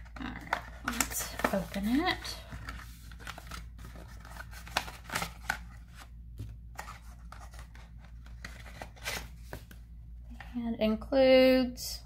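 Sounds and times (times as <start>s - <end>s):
cardboard box rustling: 0.4s - 6.0s.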